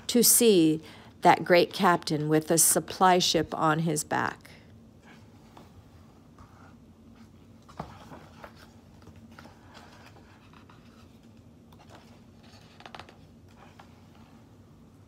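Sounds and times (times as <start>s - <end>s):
low steady hum: 0.0s - 15.0s
paper rustling: 7.1s - 14.4s.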